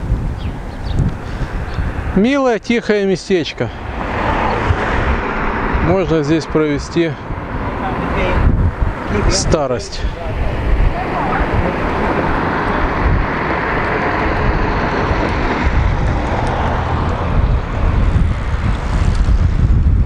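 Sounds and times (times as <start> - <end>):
wind rumble on microphone: 0.0 - 2.2, 3.8 - 20.0
van driving past: 3.7 - 19.1.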